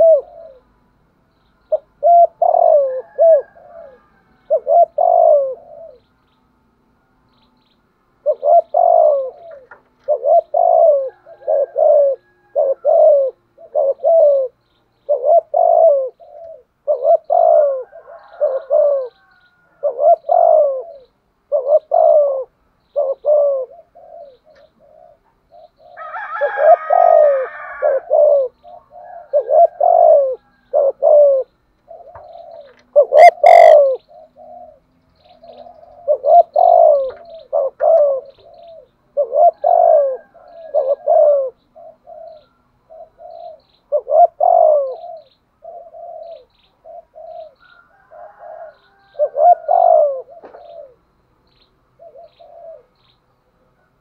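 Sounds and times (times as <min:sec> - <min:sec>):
dove cooing: 0:00.0 - 0:00.8, 0:01.7 - 0:06.1, 0:08.2 - 0:51.1, 0:52.0 - 0:54.0.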